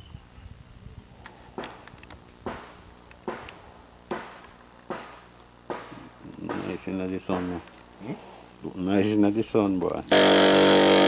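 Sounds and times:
sharp knocks: 2.4 - 6.8.

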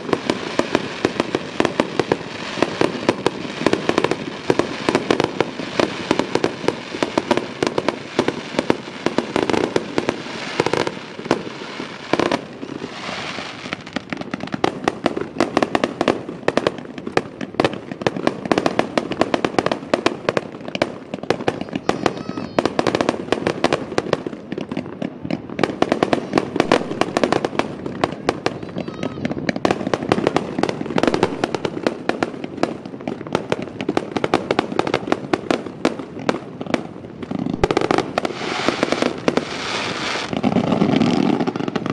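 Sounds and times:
fireworks bangs and crackling pops: 0.0 - 41.9.

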